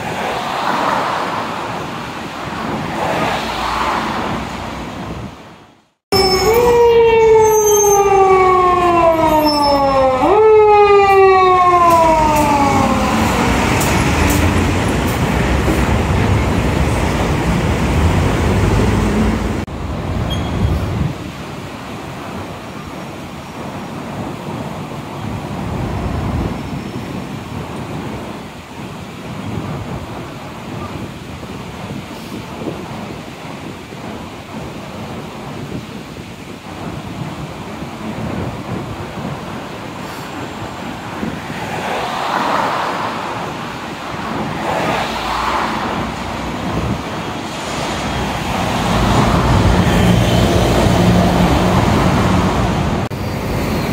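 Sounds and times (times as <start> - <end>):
road traffic noise: 0.0 - 53.9
police siren wailing: 6.2 - 13.8.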